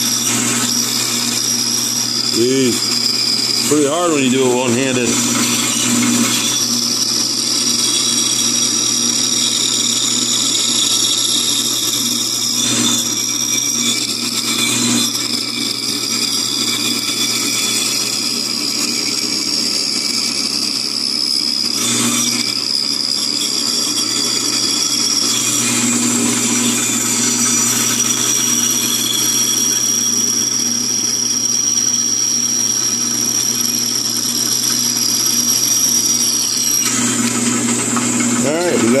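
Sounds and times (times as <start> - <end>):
bandsaw cutting wood: 0.0 - 20.0, 23.5 - 30.0, 34.5 - 39.0.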